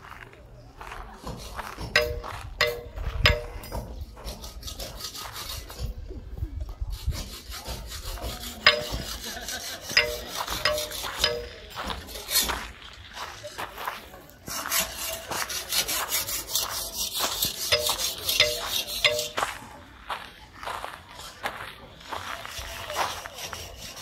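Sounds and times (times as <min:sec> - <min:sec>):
rasping scrapes: 0:01.2 - 0:06.0, 0:06.7 - 0:13.5, 0:14.4 - 0:19.6, 0:22.1 - 0:24.0
steel tool striking stone: 0:01.8 - 0:05.0, 0:07.7 - 0:12.6, 0:16.6 - 0:19.6.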